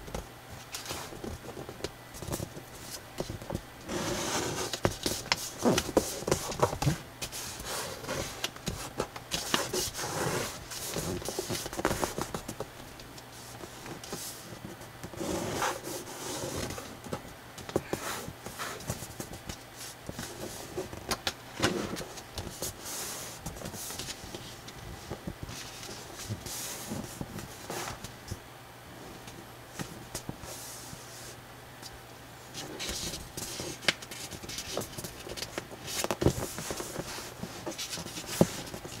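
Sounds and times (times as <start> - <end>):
paper rustling and crackling: 32.5 - 39.0.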